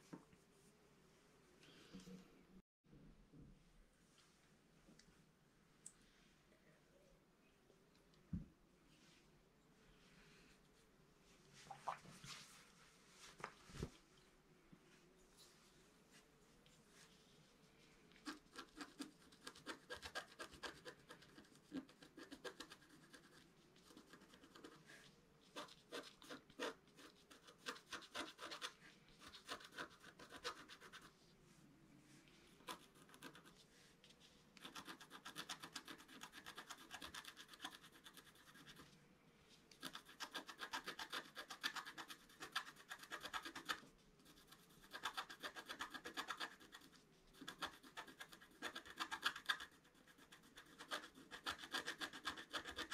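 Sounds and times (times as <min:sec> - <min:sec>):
stylus scratching paper: 0:18.2 - 0:31.2, 0:32.6 - 0:33.6, 0:34.2 - 0:38.9, 0:39.8 - 0:52.9.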